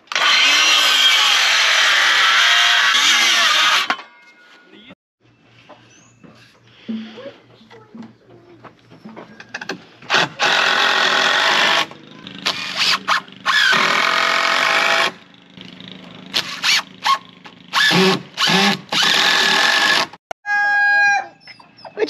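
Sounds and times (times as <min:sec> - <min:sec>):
cordless drill driving screws: 0:00.1 - 0:03.9, 0:10.1 - 0:15.2, 0:17.7 - 0:20.1
screw biting into wood: 0:16.4 - 0:20.1.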